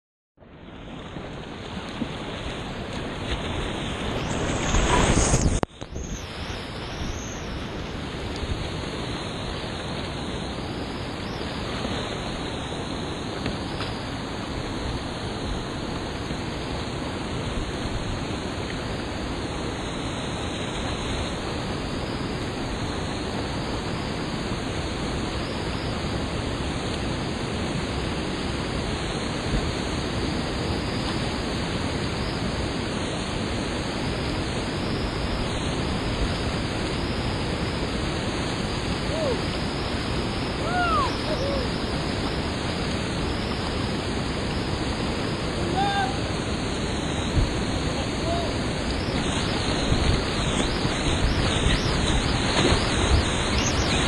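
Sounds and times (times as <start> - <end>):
rushing whitewater roar: 6.2 - 54.0
brief high calls: 40.6 - 41.8.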